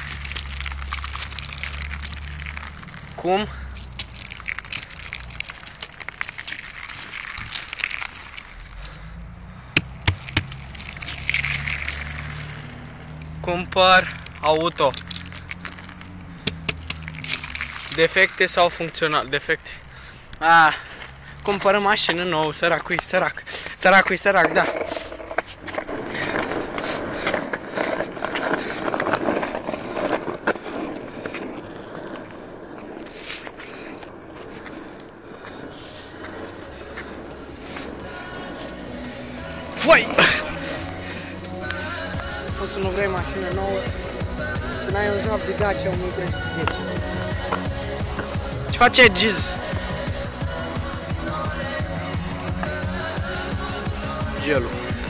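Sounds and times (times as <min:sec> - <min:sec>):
skateboard wheels on asphalt: 0:00.0 - 0:55.0
sharp knocks: 0:09.8 - 0:10.6, 0:16.4 - 0:17.0.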